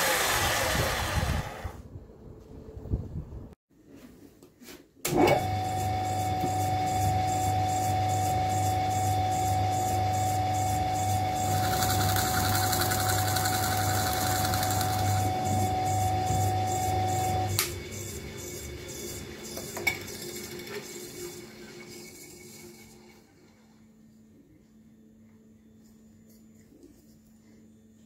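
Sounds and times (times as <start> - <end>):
pillar drill motor humming: 7.4 - 23.2
drill bit boring into wood: 11.3 - 15.8.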